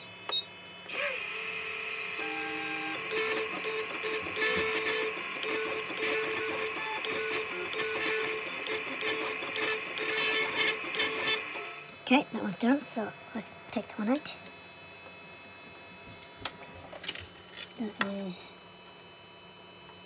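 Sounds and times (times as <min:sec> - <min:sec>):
spindle high whine: 0:00.0 - 0:16.6
drive motors whirring in pulses: 0:00.2 - 0:12.0.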